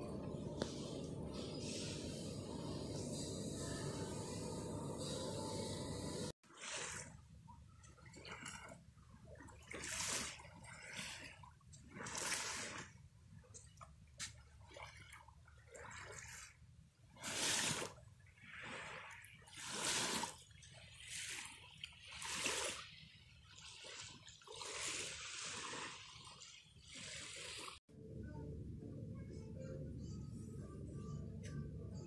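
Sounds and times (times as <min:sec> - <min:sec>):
steady low sound: 0:00.0 - 0:06.3
small waves washing onto beach: 0:08.1 - 0:13.0, 0:17.2 - 0:27.8.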